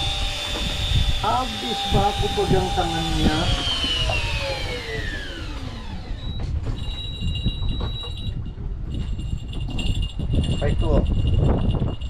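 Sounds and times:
fishing reel motor whine: 0.0 - 8.4.

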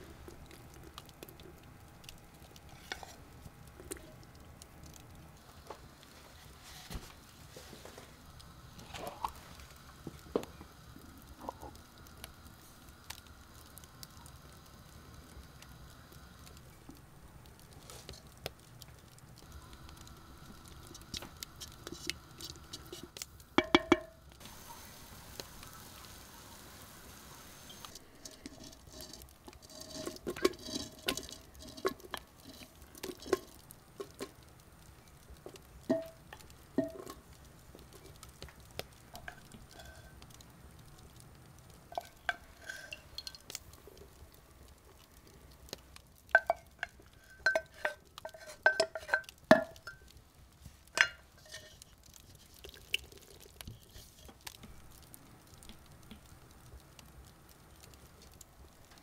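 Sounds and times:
quiet stirring: 0.0 - 59.0.

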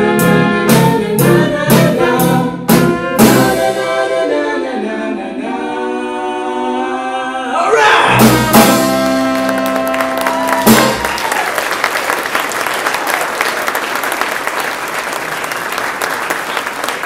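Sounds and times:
accented drum hits: 8.2 - 9.3
audience applause: 9.0 - 17.0.

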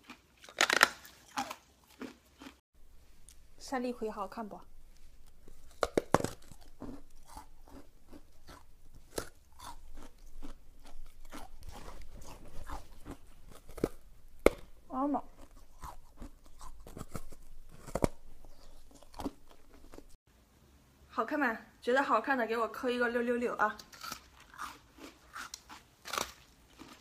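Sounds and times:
chewing ice: 0.0 - 2.6, 4.6 - 20.2, 23.8 - 27.0
ice cracking between teeth: 0.4 - 2.2, 5.5 - 14.6, 25.4 - 27.0.

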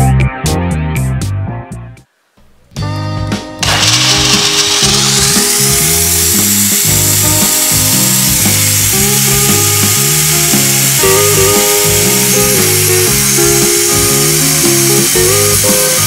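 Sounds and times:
blender motor whining: 3.6 - 16.0.

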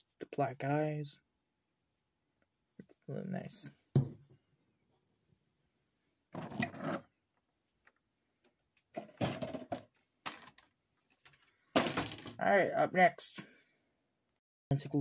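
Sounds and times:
plastic tray clattering and rustling: 8.9 - 12.4.

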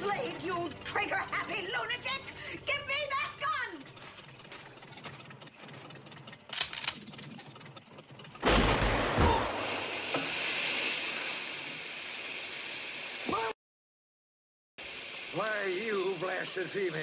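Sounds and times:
loud blast: 8.4 - 11.5
steady hiss: 9.6 - 13.5, 14.8 - 17.0.

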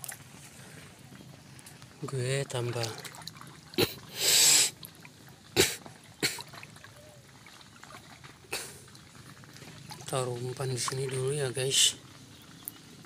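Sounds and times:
turtle hissing: 3.8 - 4.8.

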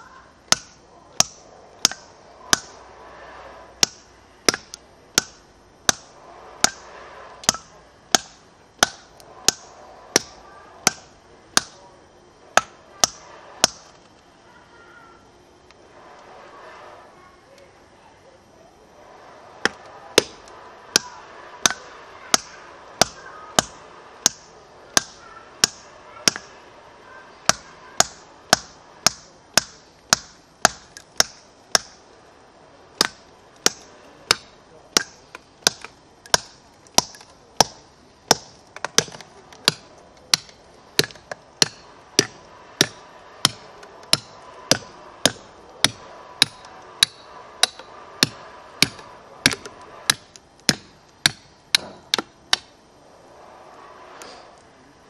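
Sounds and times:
hammer striking steel wedges: 0.5 - 2.9, 3.8 - 11.8, 12.6 - 13.9, 19.6 - 26.6, 27.4 - 32.0, 33.0 - 52.7.

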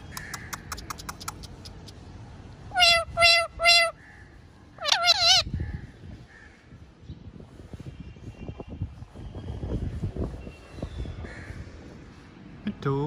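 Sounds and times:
parrot squawks: 2.7 - 4.0, 4.7 - 5.6
parrot warbling call: 2.7 - 4.0, 4.7 - 5.6.

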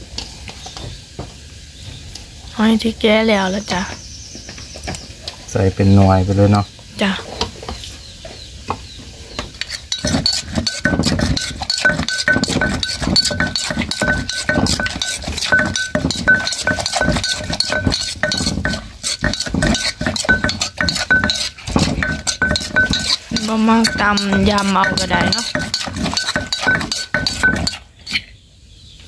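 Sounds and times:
metal spoon scraping and clinking: 9.6 - 28.2
wooden pestle pounding in mortar: 9.9 - 27.8.

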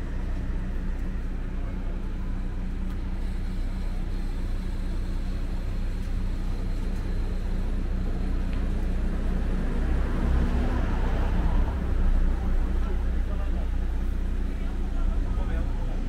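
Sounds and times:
faint background hubbub: 0.0 - 16.0
traffic hum: 0.0 - 16.0.

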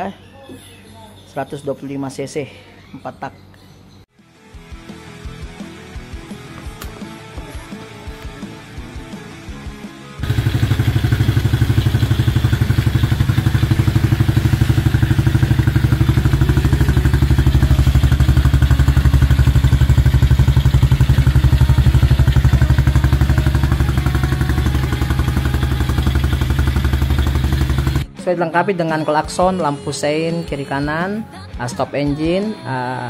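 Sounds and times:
atv engine idling: 10.2 - 28.1.

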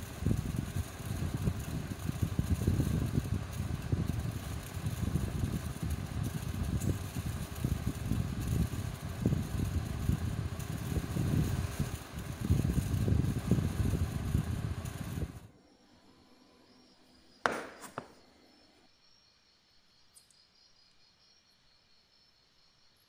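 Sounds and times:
knock on wooden desk: 17.5 - 18.1.

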